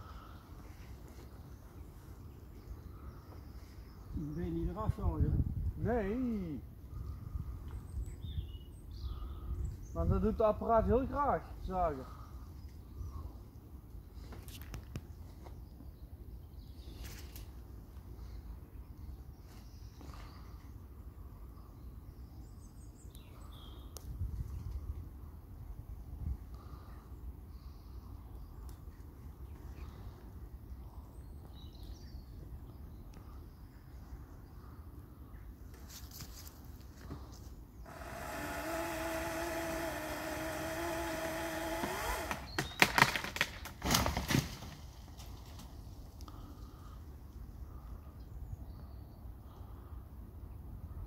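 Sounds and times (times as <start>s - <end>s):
wind rumble on microphone: 4.1s - 6.1s, 24.0s - 26.5s
chainsaw cutting: 37.8s - 43.5s
branch breaking with sharp cracks: 41.8s - 45.7s.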